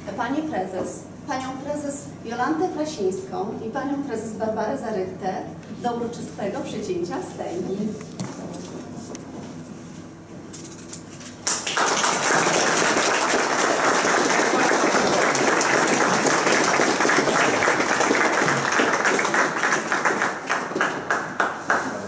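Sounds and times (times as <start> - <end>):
crowd applauding: 11.4 - 22.0.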